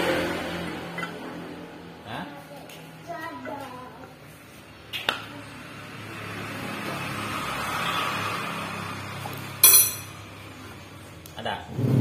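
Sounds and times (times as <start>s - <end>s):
sharp metallic clink: 9.6s - 10.2s.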